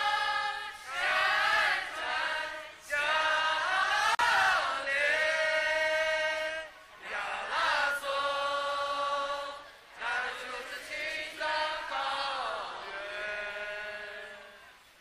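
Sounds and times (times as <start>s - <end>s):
group singing in unison: 0.0s - 14.9s.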